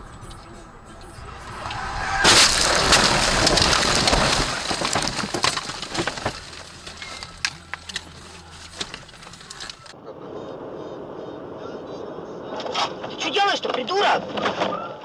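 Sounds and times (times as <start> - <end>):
crunching and scraping: 0.0 - 10.0
car crash: 1.1 - 10.0
branches rustling and debris clicking: 1.2 - 10.0.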